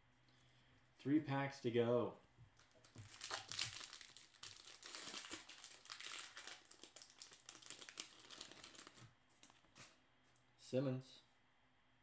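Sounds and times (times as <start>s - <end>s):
plastic wrapper crinkling: 2.6s - 9.9s.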